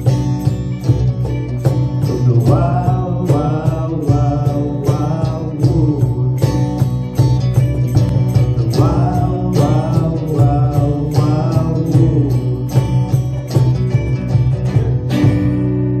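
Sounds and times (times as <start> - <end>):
cajon beat: 0.0 - 16.0
strummed guitars: 0.0 - 16.0
person singing: 2.0 - 6.8, 8.6 - 13.3.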